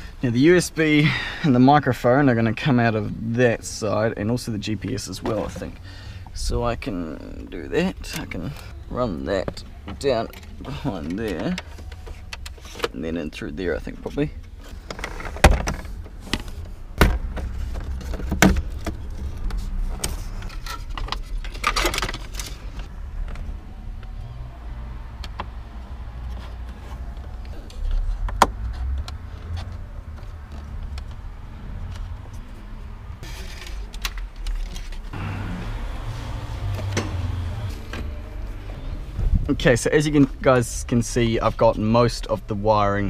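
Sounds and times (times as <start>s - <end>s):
steady low rumble: 35.1s - 42.7s.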